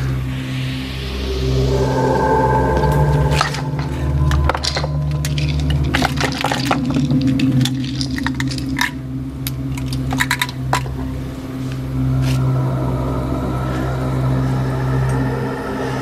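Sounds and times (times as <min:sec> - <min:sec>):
low steady drone: 0:00.0 - 0:16.0
small hard objects clinking: 0:04.4 - 0:11.0.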